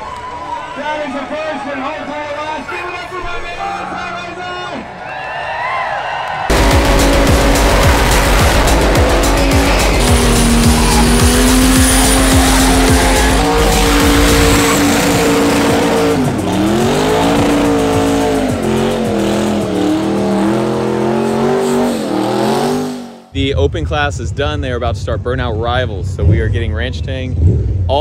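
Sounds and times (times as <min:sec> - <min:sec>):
spinning tyres hissing: 0:06.5 - 0:23.0
car engine revving high: 0:06.5 - 0:23.3.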